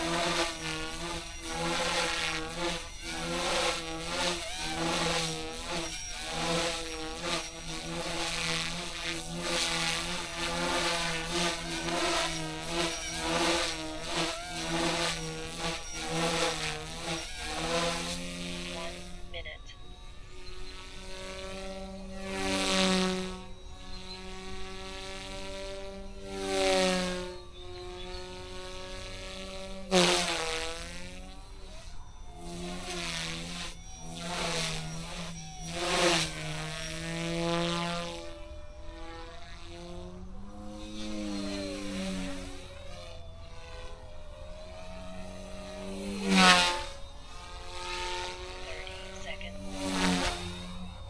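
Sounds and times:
rc helicopter buzzing whine: 0:00.0 - 0:51.0.

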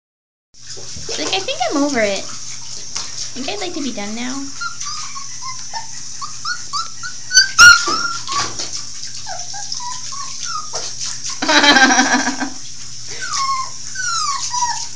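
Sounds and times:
water spraying from shower head: 0:00.6 - 0:06.9, 0:07.8 - 0:14.9
puppy whimpering: 0:04.4 - 0:12.3, 0:13.1 - 0:14.9.

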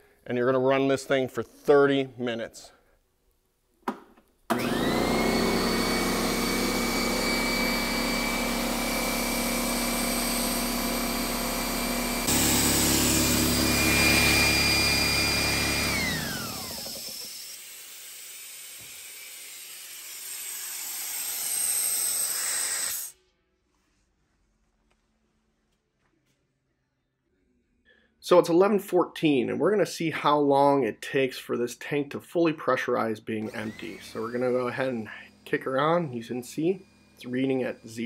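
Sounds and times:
air compressor motor whine: 0:04.5 - 0:17.5, 0:33.4 - 0:38.0.

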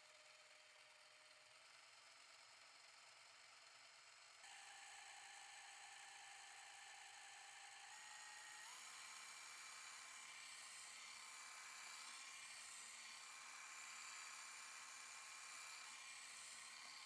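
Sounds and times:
electric hand mixer whining: 0:04.5 - 0:17.0.

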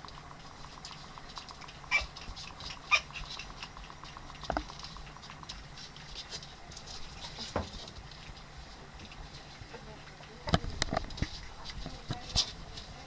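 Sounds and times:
puppies squeaking and yelping: 0:00.6 - 0:07.5.

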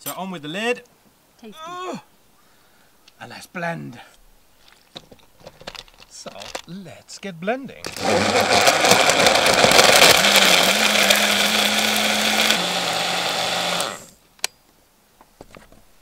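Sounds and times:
blender crushing ice: 0:07.8 - 0:14.1.

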